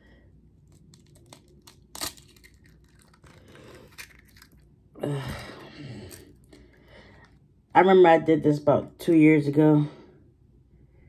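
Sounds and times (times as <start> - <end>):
eggshell cracking: 0.6 - 4.8.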